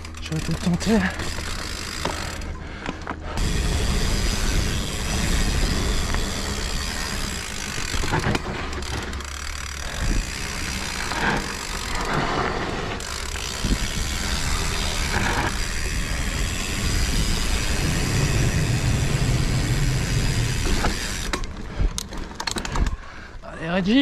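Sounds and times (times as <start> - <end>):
freehub ticking: 0.0 - 23.0
bike rattling: 0.0 - 24.0
bike tyres rolling on dirt: 0.0 - 24.0
wind rumble on microphone: 13.5 - 20.9.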